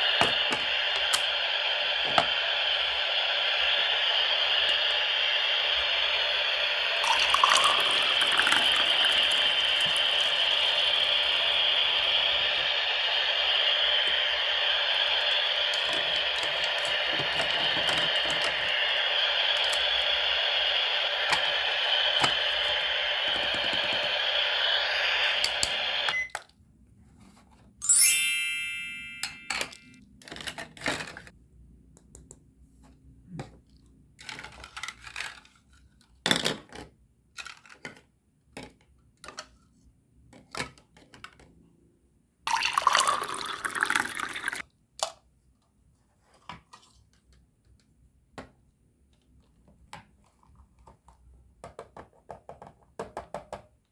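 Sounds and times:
toy cooktop boiling hiss: 0.0s - 26.3s, 27.8s - 29.5s, 42.5s - 44.6s
water pouring into a bowl: 7.0s - 10.2s, 42.5s - 44.6s
bright ding: 27.8s - 30.0s.

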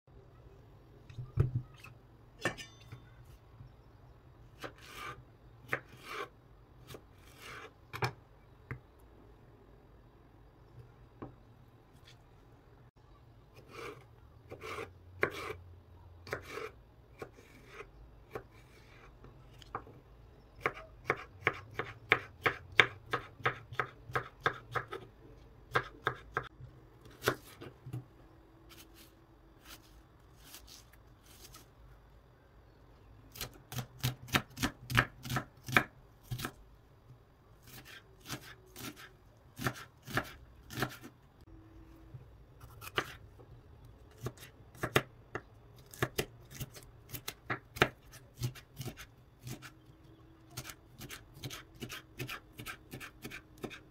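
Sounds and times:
knife chopping on wooden board: 20.6s - 25.1s, 25.7s - 26.5s, 33.4s - 36.5s, 37.7s - 41.1s, 44.2s - 49.7s, 50.6s - 53.8s.

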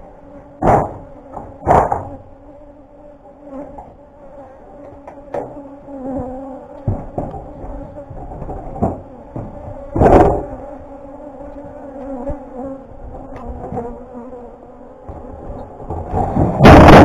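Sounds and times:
bees buzzing: 0.0s - 17.0s
knocks on hive box: 0.6s - 2.2s, 6.2s - 10.6s.

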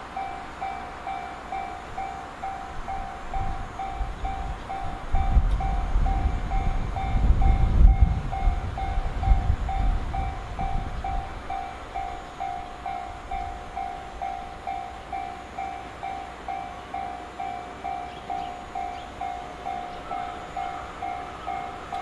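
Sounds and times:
freight train rumble: 0.0s - 22.0s
level crossing warning bell: 0.0s - 22.0s.

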